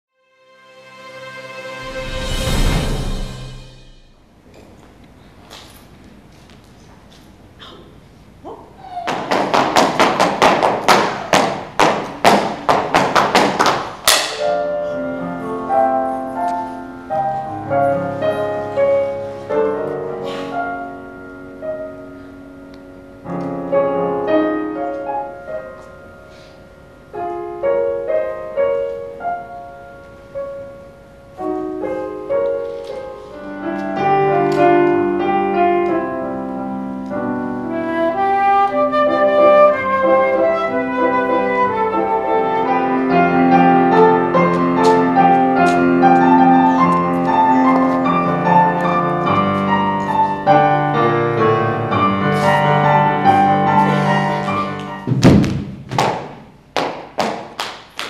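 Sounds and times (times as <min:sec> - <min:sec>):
piano: 0:00.1 - 0:58.0
flute: 0:37.6 - 0:45.2.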